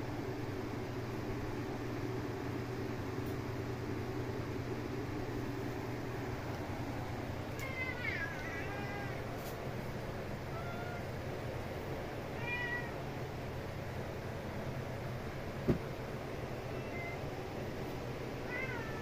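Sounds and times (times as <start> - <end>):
steady low hum: 0.0 - 19.0
cat meowing: 7.6 - 9.3, 10.5 - 11.1, 12.3 - 13.0, 16.7 - 17.3, 18.4 - 19.0.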